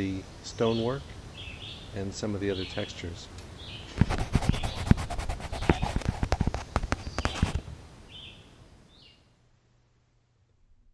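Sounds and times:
bird chirping: 0.5s - 6.0s, 6.9s - 9.3s
pencil scratching on paper: 4.0s - 7.6s.

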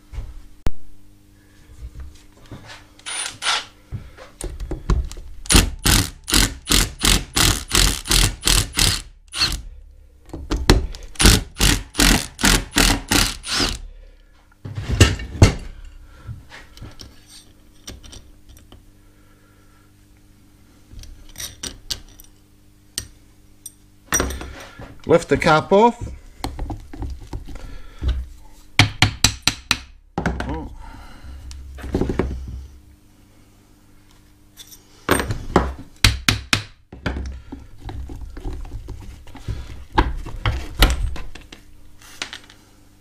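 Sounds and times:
cordless drill pulsing: 3.0s - 3.7s, 5.5s - 9.6s, 11.2s - 13.8s.

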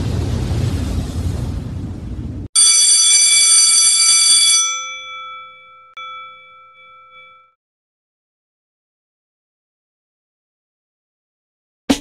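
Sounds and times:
bell ringing: 2.6s - 7.6s.

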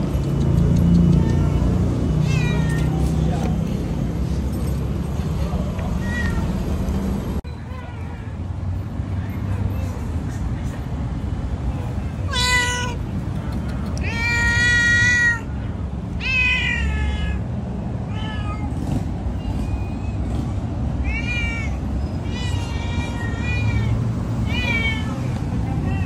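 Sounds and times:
cat meowing loudly: 1.1s - 3.2s, 5.8s - 6.6s, 12.3s - 13.0s, 14.0s - 18.8s, 21.0s - 26.0s.

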